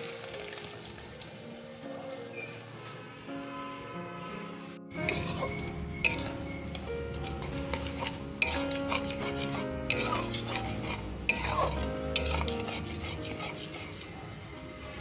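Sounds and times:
soft background music: 0:00.0 - 0:15.0
metal spatula scraping pan: 0:04.2 - 0:14.3.

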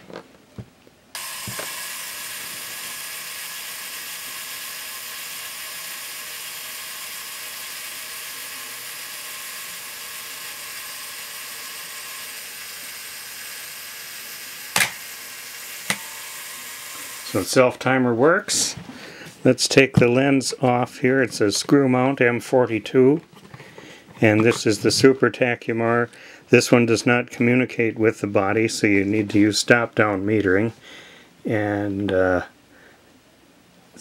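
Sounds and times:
mechanical self-timer running: 0:01.2 - 0:17.5.

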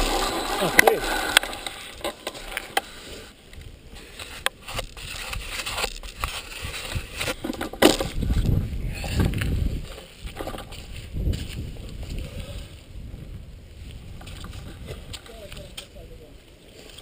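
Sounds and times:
bike rattling and knocking: 0:00.0 - 0:02.8, 0:04.4 - 0:11.6.

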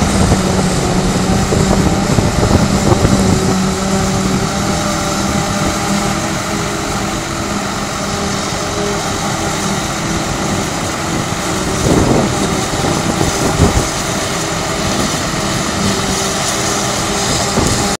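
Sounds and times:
forage harvester engine droning: 0:00.0 - 0:18.0
tractor engine: 0:00.0 - 0:18.0.

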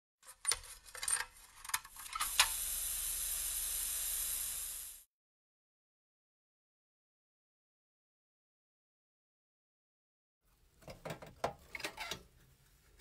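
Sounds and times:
spray paint hissing: 0:02.0 - 0:05.1.

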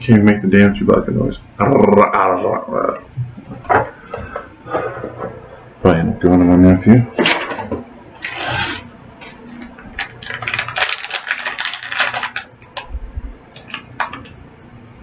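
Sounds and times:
packaging rustling and crinkling: 0:08.2 - 0:12.9, 0:13.5 - 0:14.4.

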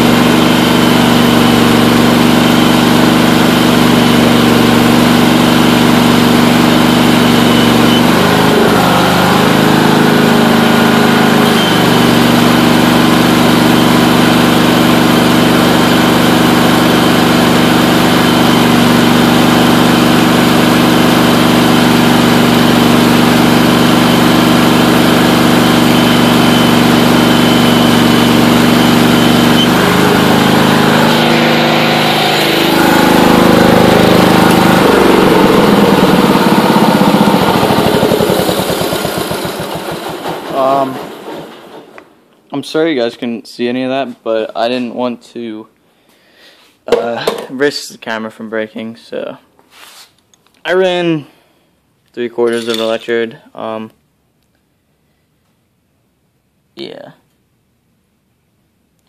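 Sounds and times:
garden tractor engine running: 0:00.0 - 0:42.2.

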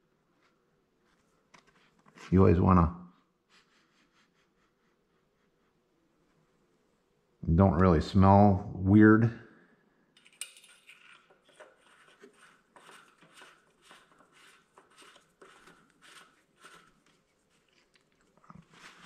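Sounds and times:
faint handling rustles and clicks: 0:00.3 - 0:02.4.

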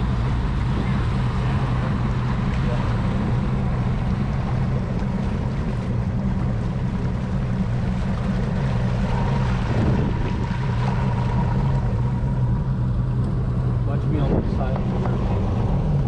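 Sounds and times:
motorboat engine running: 0:00.0 - 0:16.0
water rushing past: 0:00.0 - 0:16.0
wind rushing: 0:09.5 - 0:11.6.

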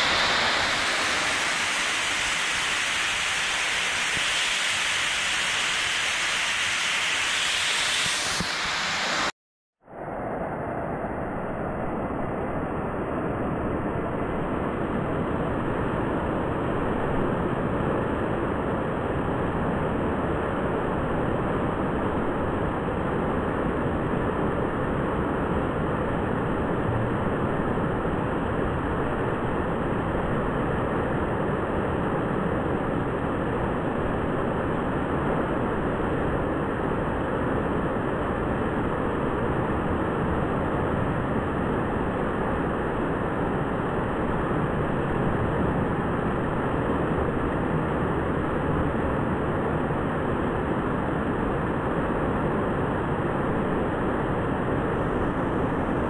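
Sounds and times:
waterfall rushing: 0:00.0 - 0:09.3.

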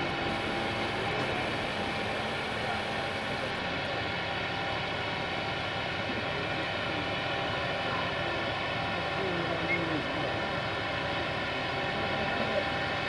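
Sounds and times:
diesel engine running steadily: 0:00.0 - 0:13.0.

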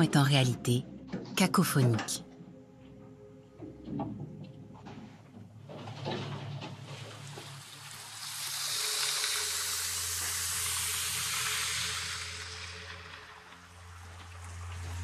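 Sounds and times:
underwater fizzing ice bubbles: 0:06.9 - 0:15.0.

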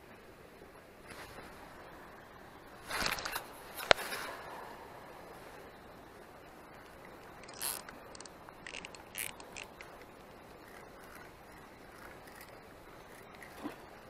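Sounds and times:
faint steady hiss: 0:00.0 - 0:14.0
handling scrapes and rustles: 0:01.0 - 0:01.6, 0:02.8 - 0:04.5.

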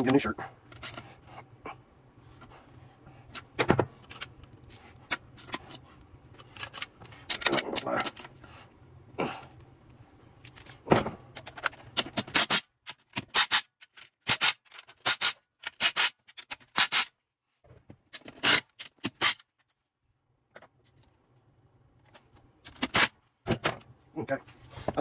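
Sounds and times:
metal parts clicking and scraping: 0:00.0 - 0:01.0, 0:03.3 - 0:08.4, 0:10.4 - 0:17.1, 0:18.1 - 0:19.8, 0:22.0 - 0:23.1.

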